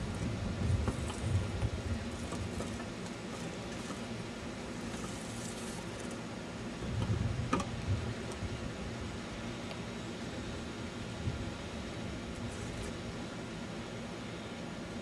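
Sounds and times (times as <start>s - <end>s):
wind rumble on microphone: 0.0s - 2.8s, 6.8s - 9.2s, 10.4s - 13.0s.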